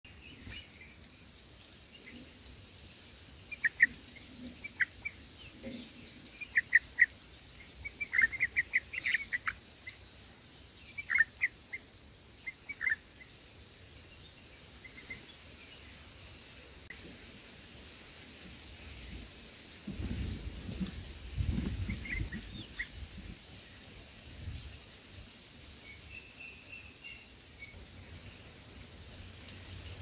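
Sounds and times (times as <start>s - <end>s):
bird chirping: 3.5s - 13.4s.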